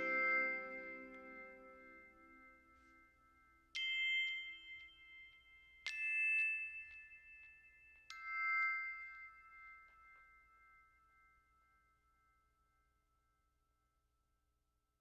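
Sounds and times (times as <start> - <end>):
bell-like notes ringing: 0.0 - 11.5.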